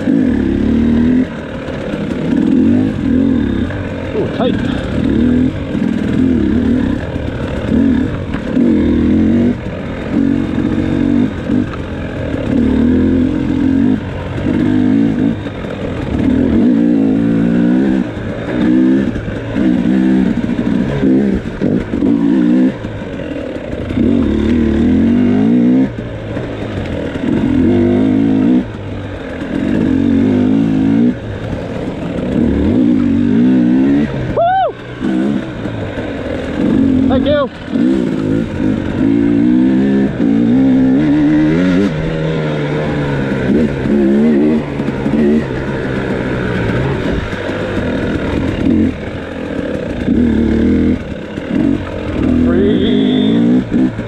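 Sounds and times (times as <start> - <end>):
two-stroke motorcycle revving: 0.0 - 54.0.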